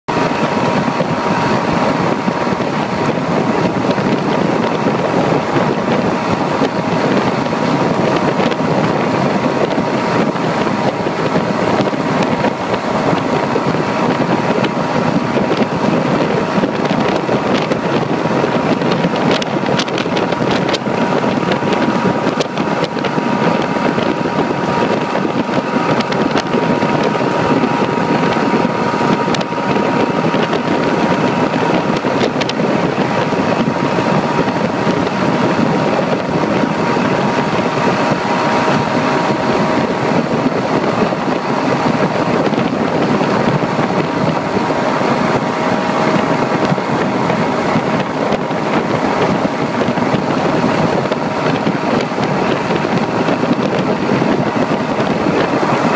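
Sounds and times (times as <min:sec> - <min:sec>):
churning wake water: 0:00.0 - 0:55.9
outboard motor running: 0:00.0 - 0:55.9
wind on microphone: 0:00.0 - 0:55.9.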